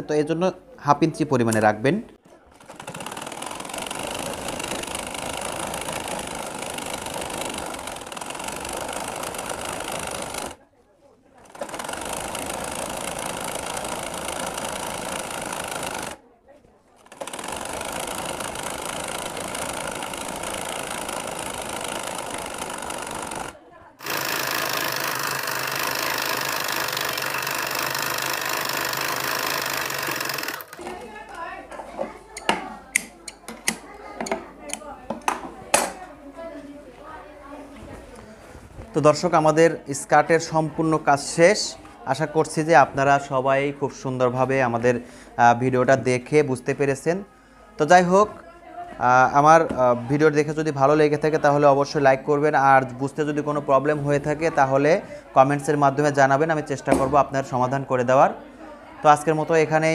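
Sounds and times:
sewing machine stitching: 2.5s - 10.6s, 11.4s - 16.2s, 17.0s - 31.0s.

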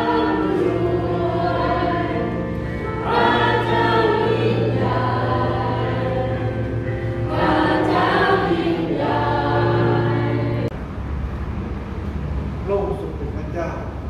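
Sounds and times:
congregation singing: 0.0s - 10.8s.

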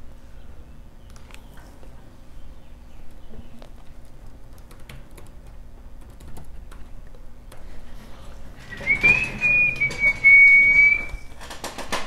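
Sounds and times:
laptop keyboard typing: 3.8s - 7.6s
person whistling high note: 8.7s - 11.3s.

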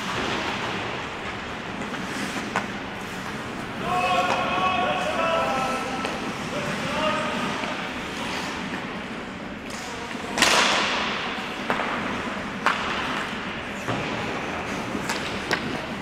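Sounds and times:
stick and puck clacks: 0.0s - 3.6s, 4.2s - 4.6s, 7.4s - 16.0s
skate blades scraping ice: 0.0s - 4.4s, 5.0s - 10.6s.

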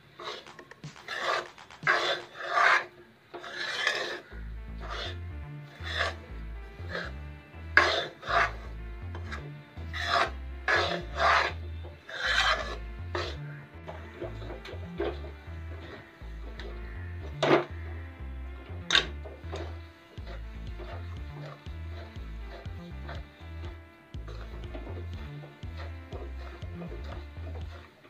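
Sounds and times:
metal spatula scraping a pan: 0.1s - 4.3s, 7.8s - 8.6s, 10.0s - 13.4s.

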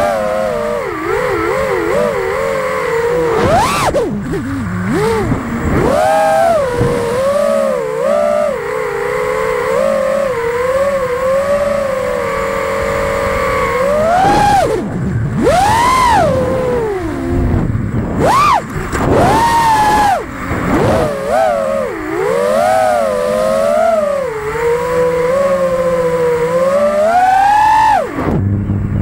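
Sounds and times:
drone motors whining: 0.0s - 29.0s.

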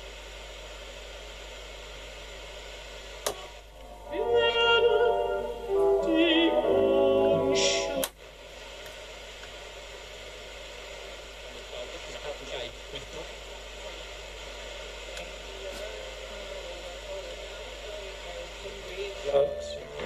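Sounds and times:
radio hiss: 0.0s - 20.0s
music with singing from radio: 3.8s - 8.2s, 15.7s - 20.0s.

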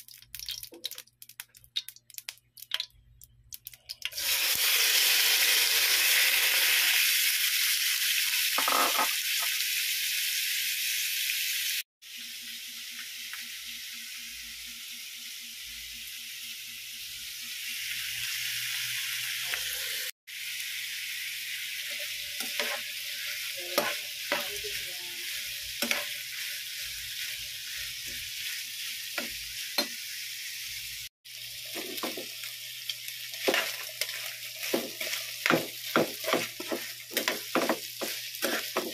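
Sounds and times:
pork sizzling in a pan: 0.0s - 38.9s
spatula scraping a pan: 21.8s - 29.9s, 33.4s - 38.9s.

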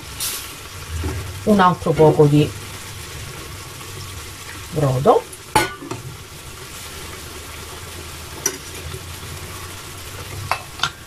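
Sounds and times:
sauce sizzling in a pan: 0.0s - 11.0s
low hum: 0.7s - 5.4s.

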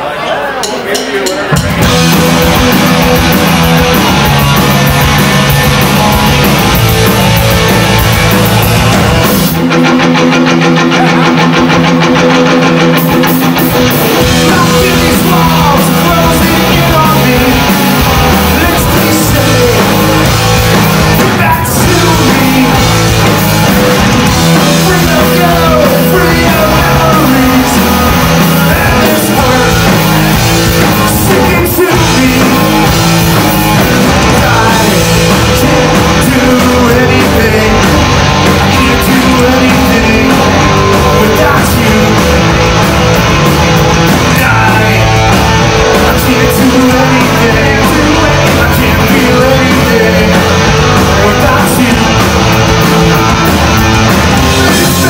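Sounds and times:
drums: 0.0s - 55.0s
electric guitars: 1.5s - 55.0s
person singing: 13.3s - 42.7s, 44.1s - 52.6s, 54.0s - 55.0s.

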